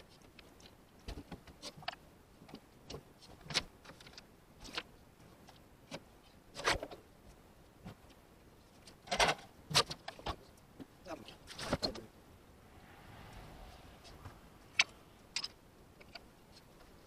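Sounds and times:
knocks and clunks of handled things: 0.2s - 7.0s, 7.8s - 12.0s.

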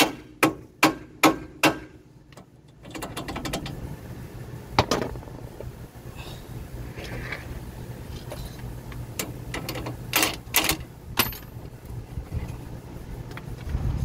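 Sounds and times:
steady low hum: 0.0s - 14.0s
metal tools clinking: 9.2s - 11.6s.

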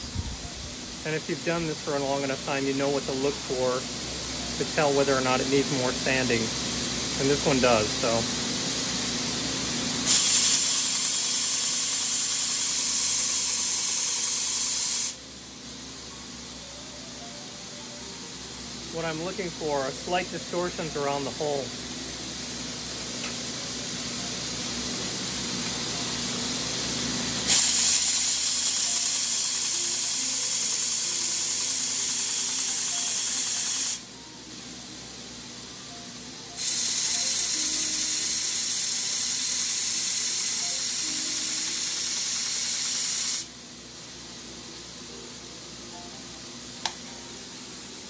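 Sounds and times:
metal grinding hiss on belt: 10.0s - 15.2s, 25.2s - 34.6s, 36.6s - 43.5s
belt sander running: 27.5s - 34.0s.

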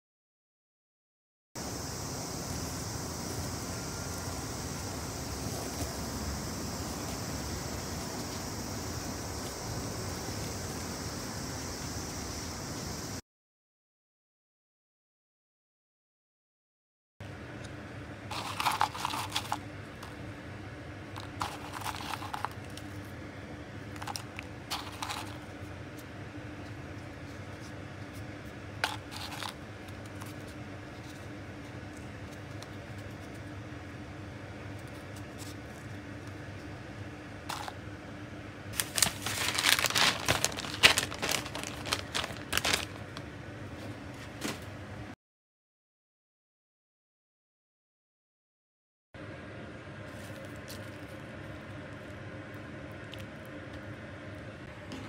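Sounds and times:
faint steady hum: 1.6s - 13.2s, 17.2s - 45.2s, 49.2s - 55.0s
dried mushroom slices rustling: 18.3s - 20.3s, 21.1s - 33.5s, 37.4s - 37.8s, 38.7s - 44.4s.

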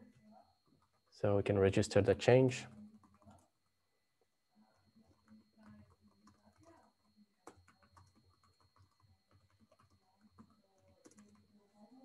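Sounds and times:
typing on a computer keyboard: 0.3s - 1.1s, 2.7s - 3.7s, 4.8s - 11.7s.

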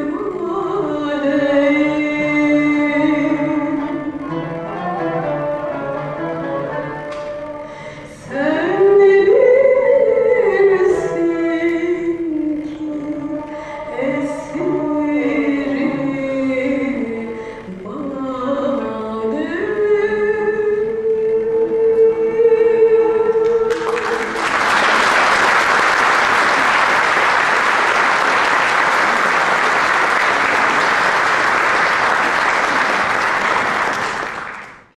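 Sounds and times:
ensemble playing: 0.0s - 34.5s
woman singing long held note: 6.8s - 24.5s
audience applause: 23.7s - 34.9s.

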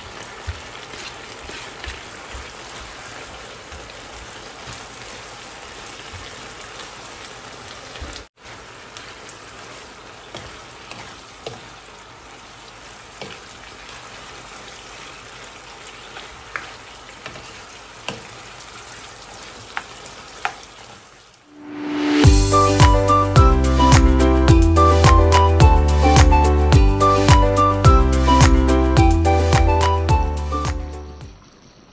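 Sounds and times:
food sizzling in a frying pan: 0.0s - 22.6s
music: 21.6s - 31.4s.

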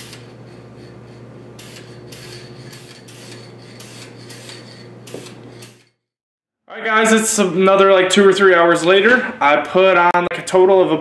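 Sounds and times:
steady low hum: 0.0s - 6.0s
aerosol can hissing in bursts: 1.6s - 5.8s.

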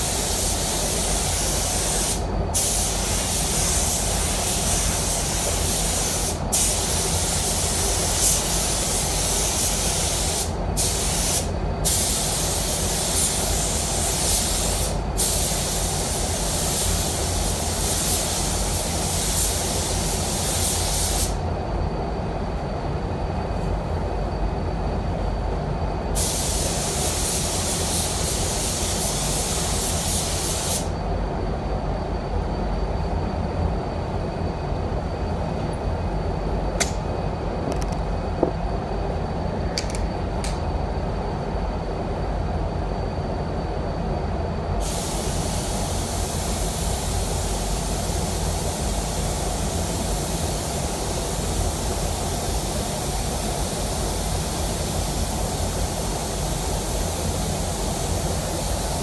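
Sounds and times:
paint spray gun hissing: 0.0s - 21.4s, 26.2s - 30.9s, 44.8s - 53.4s, 54.1s - 59.0s.

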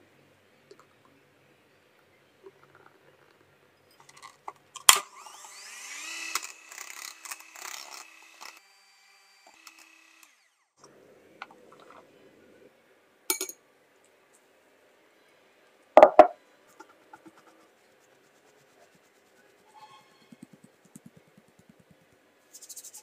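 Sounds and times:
electric hand mixer whirring: 5.1s - 10.6s.

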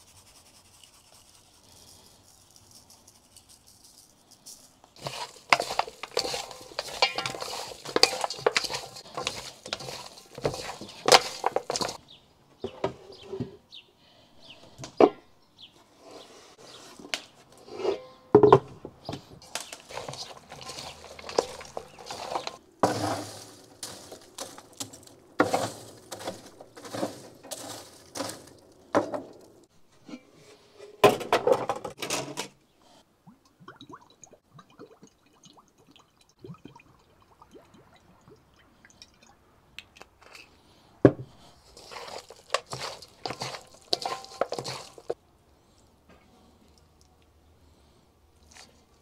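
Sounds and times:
wet squelching of meat: 48.4s - 49.0s.

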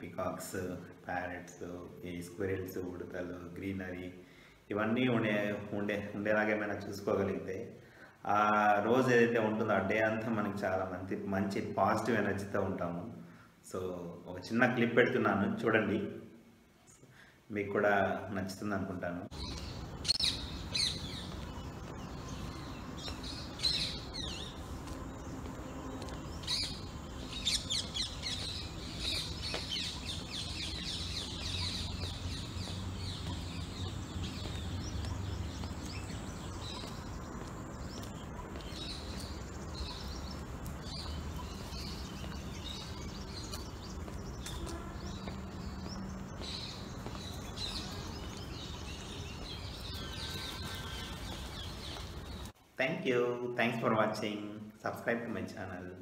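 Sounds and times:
small birds chirping: 16.8s - 56.0s.

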